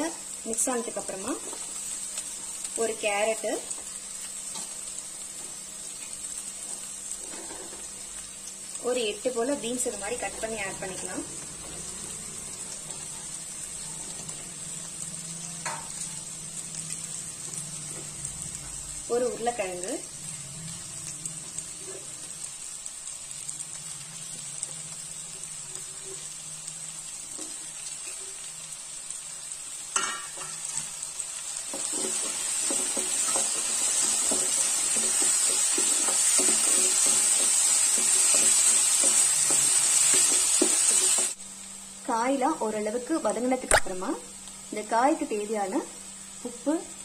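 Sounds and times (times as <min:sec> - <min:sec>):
vegetables sizzling in oil: 0:00.0 - 0:47.0
wooden spatula scraping pan: 0:31.7 - 0:41.3.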